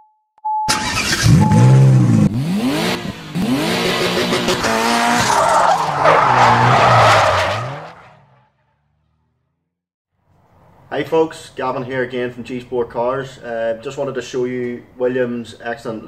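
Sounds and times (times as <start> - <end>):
car engine revving: 0.7 - 9.2
tyre screech: 4.5 - 8.4.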